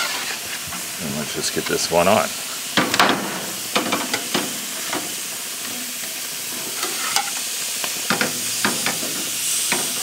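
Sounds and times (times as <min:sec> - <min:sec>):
meat sizzling on grill: 0:00.0 - 0:10.0
metal spatula scraping grate: 0:06.8 - 0:07.4.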